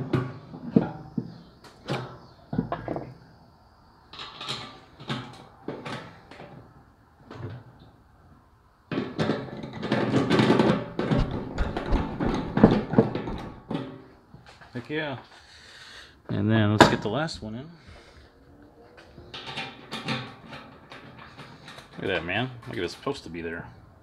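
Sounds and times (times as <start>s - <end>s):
metal nuts clicking and knocking: 8.9s - 14.1s, 19.2s - 22.9s.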